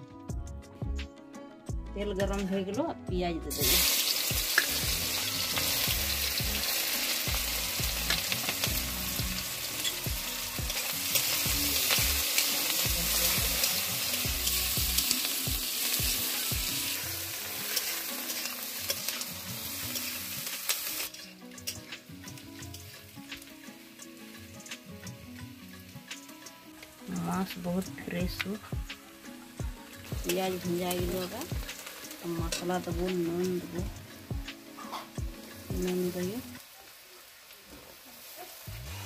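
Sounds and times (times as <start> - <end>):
onions sizzling in hot oil: 3.5 - 39.0
metal spatula scraping a pan: 34.7 - 35.2.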